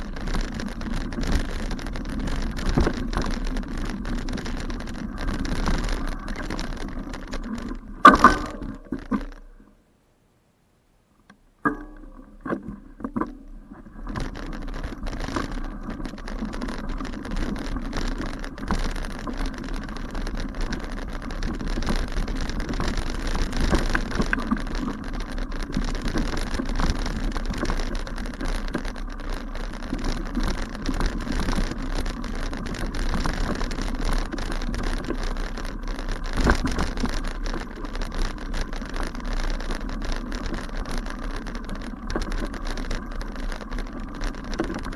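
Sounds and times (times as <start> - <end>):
bicycle knocks and rattles: 0.0 - 9.6, 11.6 - 44.9
bicycle tyres on rough grass: 0.0 - 9.7, 11.7 - 44.9
clicks: 0.0 - 9.7.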